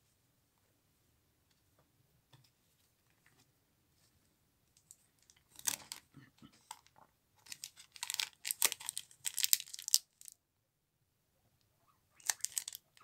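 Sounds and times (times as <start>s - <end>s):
foil wrapper crinkling: 7.5s - 10.4s, 12.2s - 12.8s.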